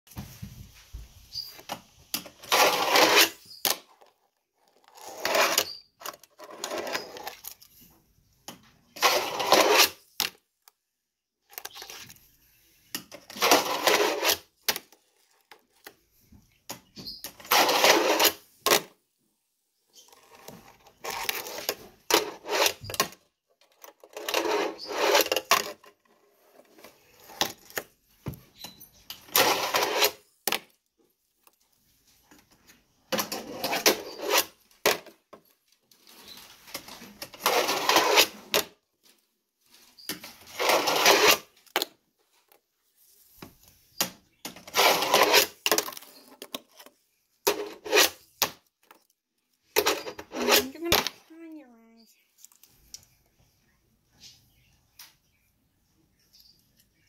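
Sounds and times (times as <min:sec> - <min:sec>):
small wheels rolling and rattling: 0:02.1 - 0:07.8, 0:09.0 - 0:10.0, 0:13.1 - 0:15.9, 0:17.0 - 0:18.6, 0:19.9 - 0:28.0, 0:28.6 - 0:30.6, 0:33.1 - 0:42.0, 0:44.5 - 0:51.0.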